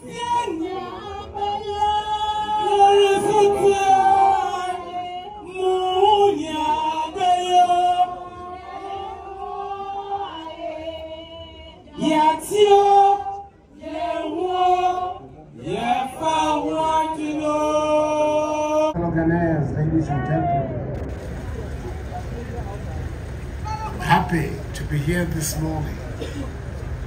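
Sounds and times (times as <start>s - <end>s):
women singing together: 0.0s - 18.9s.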